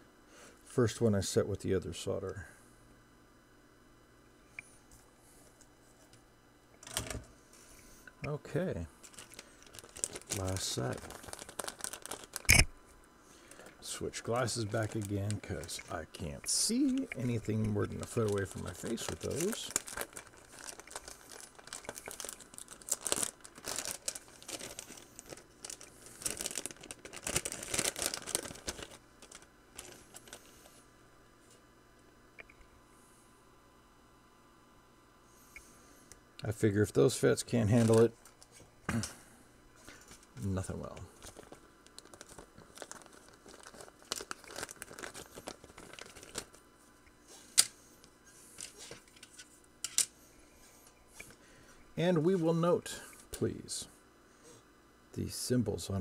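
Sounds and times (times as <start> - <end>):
plastic bag crinkling: 9.0 - 12.7, 13.4 - 30.6, 37.6 - 38.4, 41.1 - 46.6
sharp click: 12.5 - 12.7.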